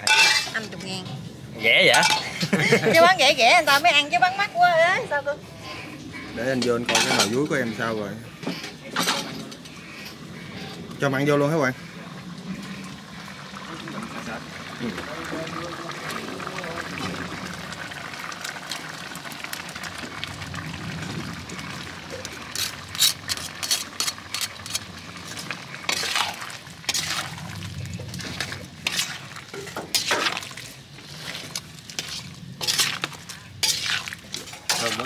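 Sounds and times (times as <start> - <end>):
metal utensil scraping pot: 0.0 - 4.0, 5.6 - 10.8, 22.1 - 35.0.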